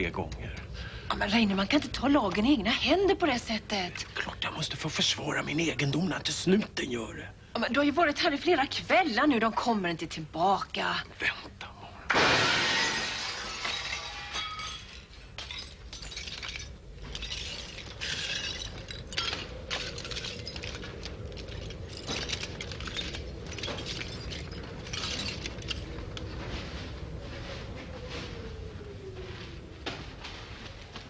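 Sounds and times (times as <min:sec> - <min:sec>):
faint steady hum: 0:00.0 - 0:31.0
glass and metal clattering: 0:12.1 - 0:26.3.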